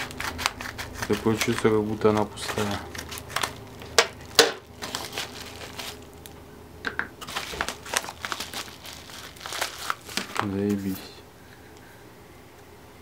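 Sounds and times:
padded mailer crinkling: 0:00.0 - 0:06.3, 0:07.2 - 0:11.1.

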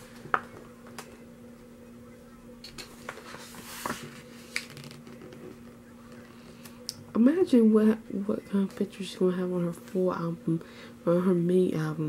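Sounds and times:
steady low hum: 0:00.0 - 0:12.0
pages turning: 0:02.8 - 0:05.5.

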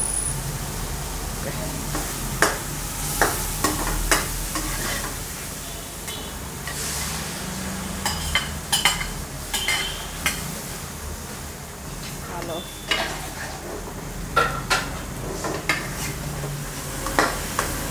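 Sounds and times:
vegetables sizzling in a pan: 0:00.0 - 0:17.9
metal spatula clinking and scraping pan: 0:03.2 - 0:05.2, 0:08.0 - 0:10.5, 0:12.8 - 0:13.6.

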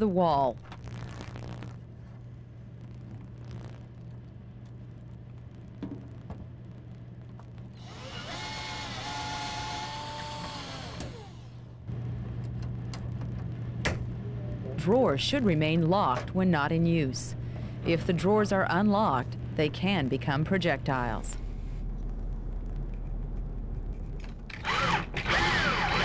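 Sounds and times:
steady low hum: 0:00.0 - 0:26.0
cordless drill motor whine: 0:07.8 - 0:11.7, 0:24.5 - 0:26.0.

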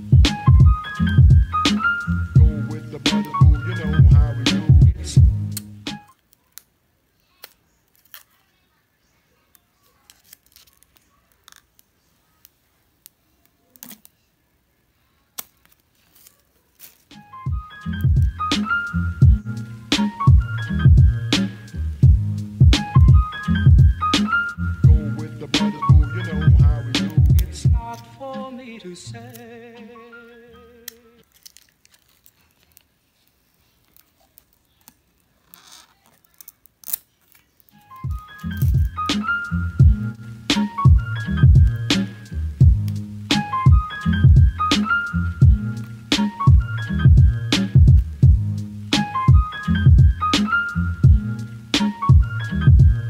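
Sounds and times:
background music: 0:00.0 - 0:06.2, 0:17.1 - 0:31.2, 0:37.8 - 0:53.0
plastic rustling: 0:07.2 - 0:14.3, 0:15.0 - 0:20.8, 0:30.7 - 0:47.1
plastic phone case clicks and rustles: 0:30.9 - 0:32.9.

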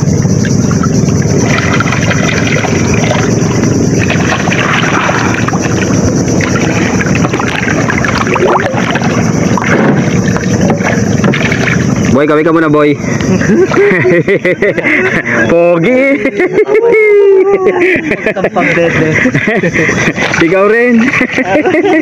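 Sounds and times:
floodwater rushing: 0:00.0 - 0:14.1, 0:18.6 - 0:22.0.

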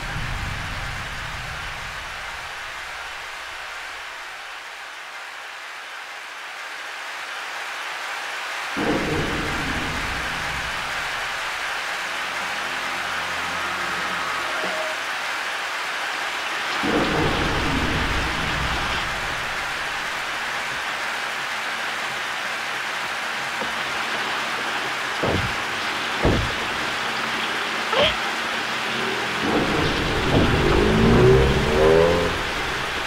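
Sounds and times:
low rumble of thunder: 0:00.0 - 0:02.6, 0:16.8 - 0:20.4, 0:29.4 - 0:33.0
heavy rain: 0:00.0 - 0:33.0
sharp knocks: 0:25.2 - 0:26.9, 0:29.5 - 0:31.9.

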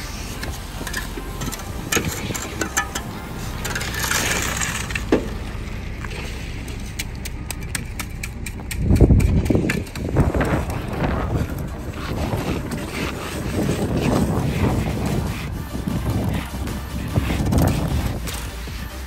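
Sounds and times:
loud low rumble: 0:00.0 - 0:18.9
shovels scraping wet concrete: 0:00.0 - 0:19.0
truck engine hum: 0:00.0 - 0:19.0
clicks and scrapes: 0:00.4 - 0:05.4.

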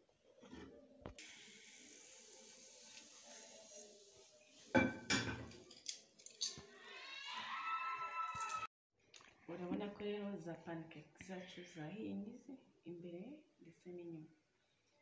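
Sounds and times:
faint steady hiss: 0:01.1 - 0:04.7
dishware knocking: 0:04.8 - 0:05.5.

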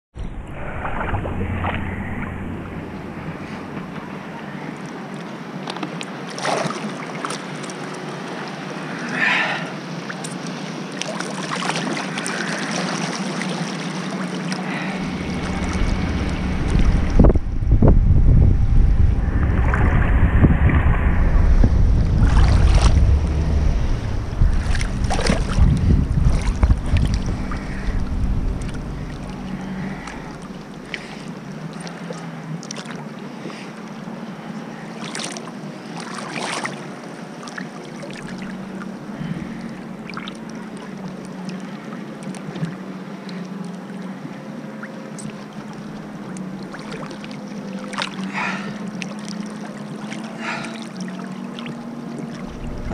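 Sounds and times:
boat engine humming: 0:00.2 - 0:52.9
water churning and sloshing: 0:00.2 - 0:52.9
small splashes: 0:04.6 - 0:16.9, 0:22.2 - 0:33.8, 0:34.8 - 0:43.8, 0:44.8 - 0:52.9.

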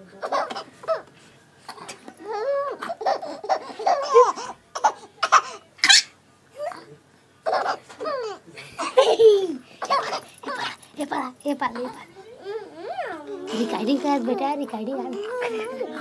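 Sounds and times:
baby laughing: 0:00.2 - 0:01.1, 0:01.8 - 0:06.8, 0:07.4 - 0:10.8.

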